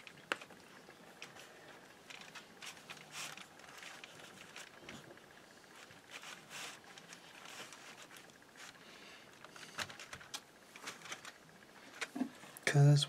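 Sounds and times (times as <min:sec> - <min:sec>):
hands rustling dough and foil: 0:00.0 - 0:12.4.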